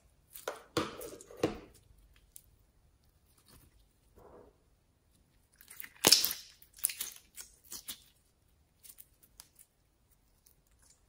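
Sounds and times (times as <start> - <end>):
slime crackling and popping: 5.4 - 8.2.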